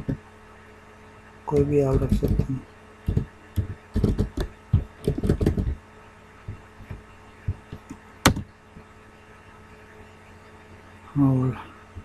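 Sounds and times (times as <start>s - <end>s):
faint steady hum: 0.0s - 12.0s
keyboard keystrokes: 1.5s - 2.5s, 3.1s - 5.8s, 7.6s - 8.5s.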